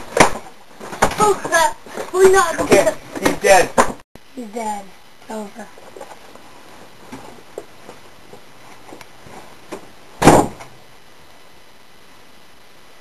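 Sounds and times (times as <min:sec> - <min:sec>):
loud short thump: 0:10.2 - 0:10.7.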